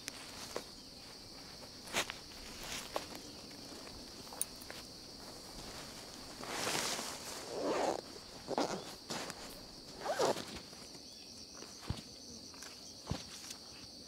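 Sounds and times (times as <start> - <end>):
high insect buzz: 0.0 - 14.0
nylon fabric rustling: 0.2 - 10.8.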